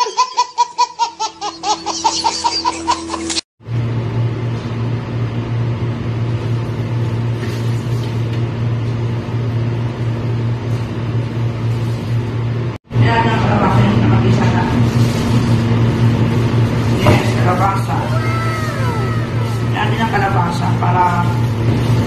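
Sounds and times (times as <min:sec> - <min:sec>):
baby laughing: 0:00.0 - 0:03.4, 0:18.1 - 0:19.8.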